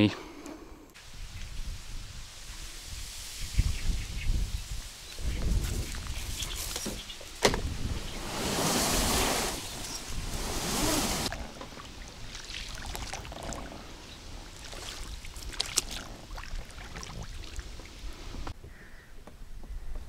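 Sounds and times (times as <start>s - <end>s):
water rushing around boat: 8.1s - 18.2s
small splashes and knocks: 11.3s - 13.7s, 14.5s - 17.9s.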